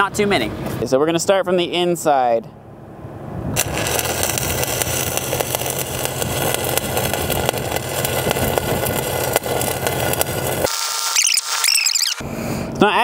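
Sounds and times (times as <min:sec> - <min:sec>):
engine hum: 0:00.1 - 0:10.7
welding arc crackling: 0:03.6 - 0:12.2.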